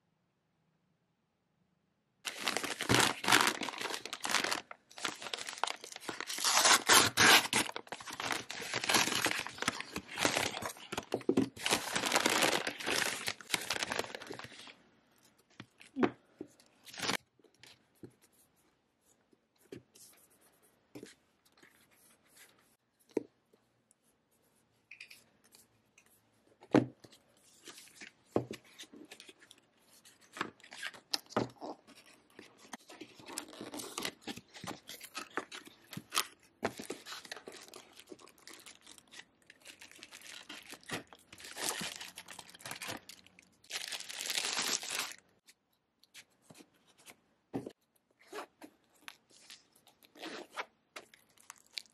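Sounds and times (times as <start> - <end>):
packaging rustling and tearing: 2.2 - 14.7, 16.9 - 17.2, 30.4 - 45.2.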